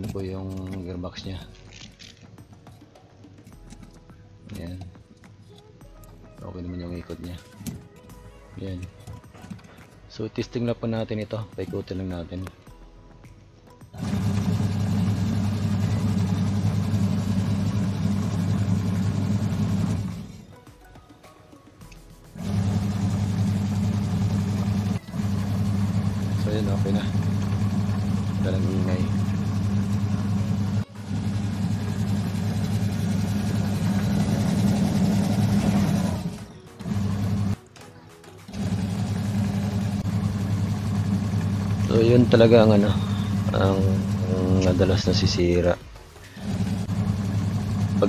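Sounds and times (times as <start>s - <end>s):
washing machine motor humming: 14.0s - 20.5s, 22.4s - 37.6s, 38.5s - 45.6s, 46.2s - 48.0s.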